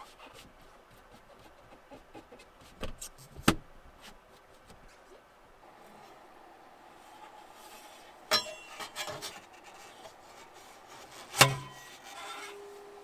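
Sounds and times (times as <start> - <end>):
metal scraping on metal: 7.0 - 13.0
sharp metallic clanks: 8.2 - 9.4.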